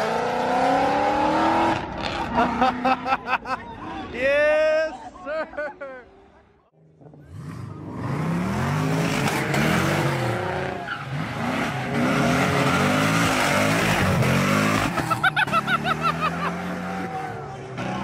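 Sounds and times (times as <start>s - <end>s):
car engine revving: 7.0s - 18.0s
tyres skidding: 7.1s - 18.0s.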